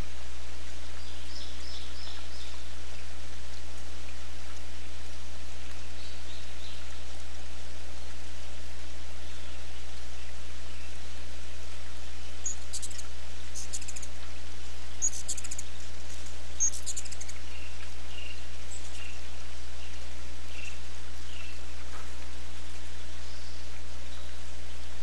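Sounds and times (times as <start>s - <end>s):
steady hiss: 0.0s - 25.0s
hummingbirds chattering chip calls: 12.1s - 14.3s, 14.9s - 21.6s.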